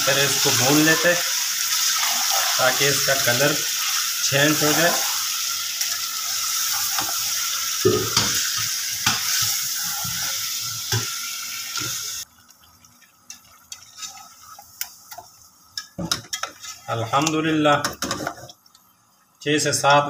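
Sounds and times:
meat sizzling in hot oil: 0.0s - 17.8s
ladle scraping and knocking pot: 15.8s - 16.9s.

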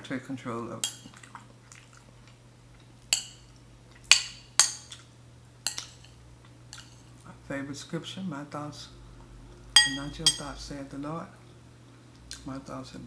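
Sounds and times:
metal spoon clinking ceramic bowl: 3.1s - 3.5s, 5.7s - 7.0s, 9.8s - 10.5s.

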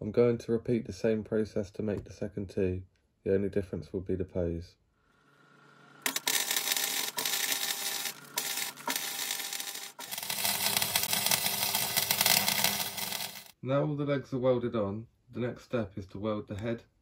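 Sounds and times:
welding arc crackling: 6.0s - 13.5s.

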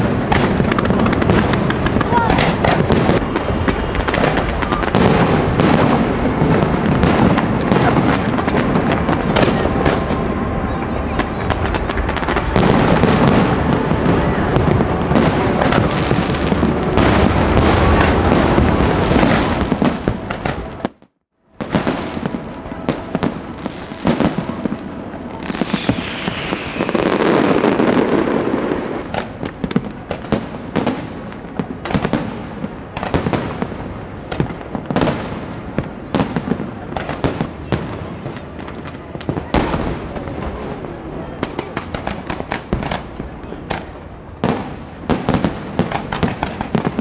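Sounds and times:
fireworks bursting and crackling: 0.0s - 47.0s.

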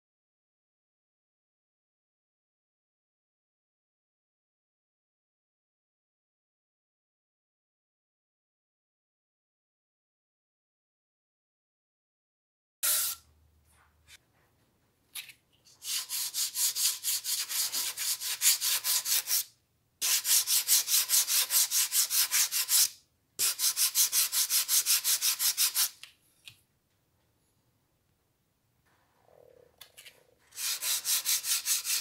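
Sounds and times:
sandpaper rubbing on wood: 15.8s - 26.0s, 30.5s - 32.0s.

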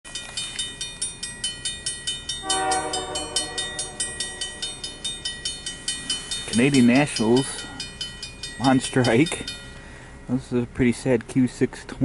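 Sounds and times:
crossing warning bell ringing: 0.1s - 10.5s
locomotive horn blast: 2.4s - 5.0s.

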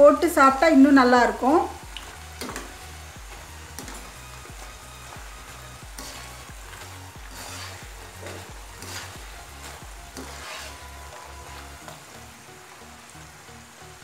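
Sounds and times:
dough sizzling in hot oil: 0.0s - 14.0s
metal skimmer stirring: 1.9s - 12.2s.

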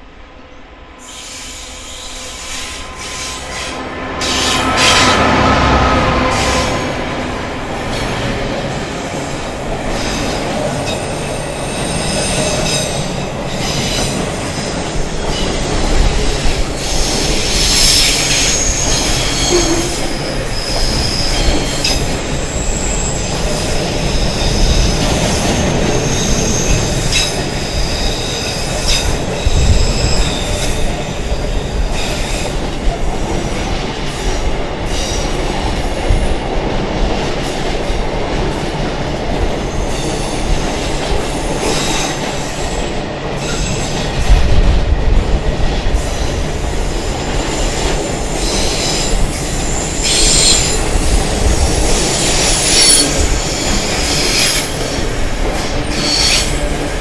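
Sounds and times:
train wagons rumbling past: 0.0s - 57.0s
high wheel squeal: 1.0s - 7.2s, 16.8s - 30.9s, 47.2s - 55.0s, 55.9s - 56.7s.

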